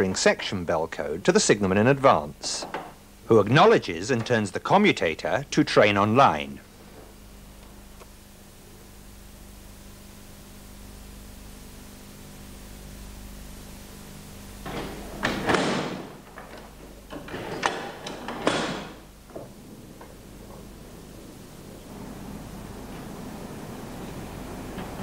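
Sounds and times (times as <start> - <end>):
faint steady hum: 0.0 - 25.0
mechanical clunking and scraping: 14.6 - 20.8.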